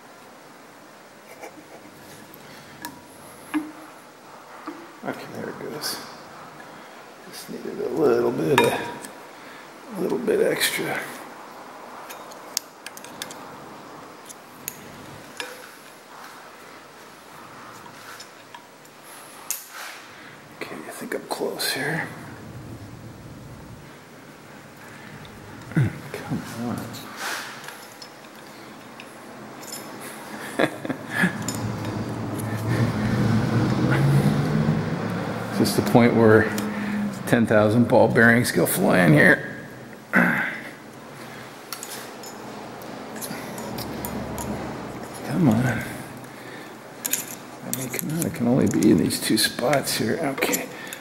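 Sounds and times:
low mechanical hum: 11.2 - 40.1.

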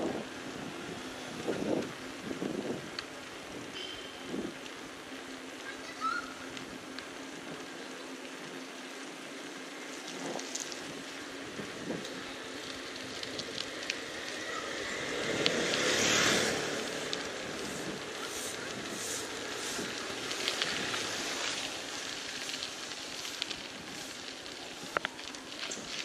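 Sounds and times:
traffic and wind hiss: 0.0 - 26.0
vehicle passing close: 13.2 - 22.0.

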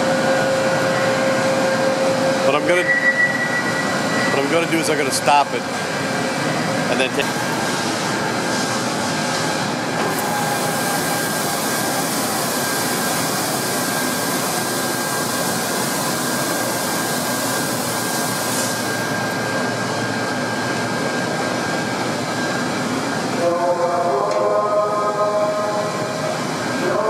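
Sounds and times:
faint high whine: 0.0 - 5.7
heavy machinery roar: 3.5 - 27.0.

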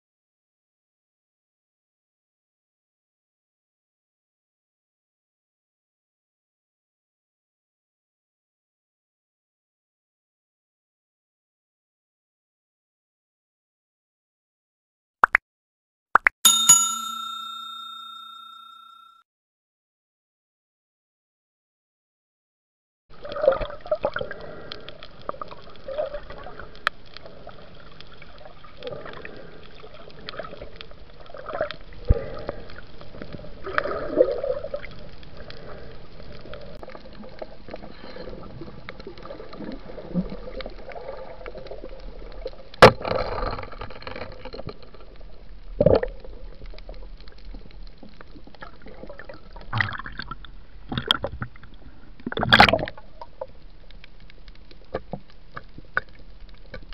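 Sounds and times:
underwater gurgling and sloshing: 23.1 - 56.9.

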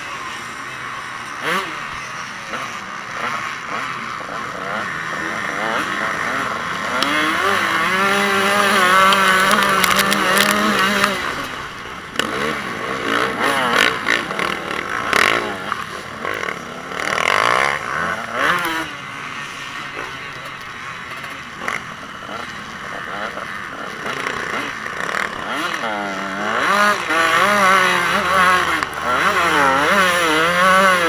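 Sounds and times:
motocross bike engine revving: 0.0 - 31.0.

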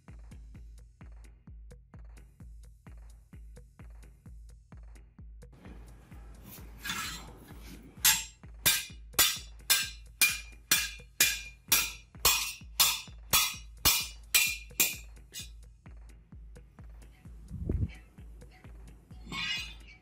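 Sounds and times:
hammer striking metal on anvil: 8.0 - 15.6.

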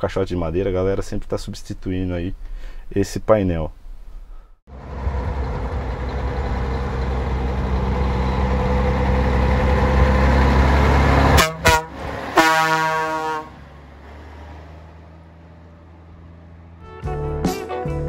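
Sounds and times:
diesel truck engine driving: 4.7 - 17.4
truck air horn: 11.3 - 13.6.

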